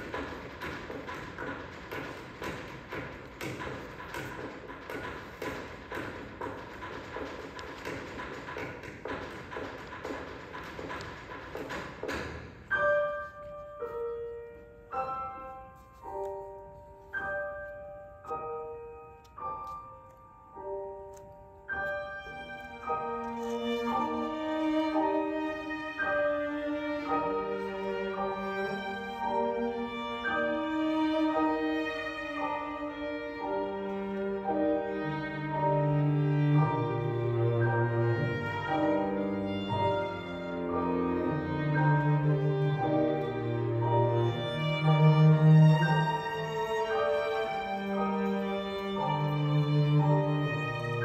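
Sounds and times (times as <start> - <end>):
string trio playing chamber music: 0.0 - 14.3, 21.1 - 51.0.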